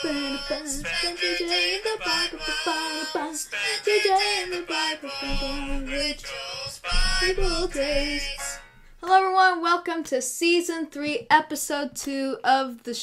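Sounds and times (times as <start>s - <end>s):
person singing over music: 0.0s - 8.6s.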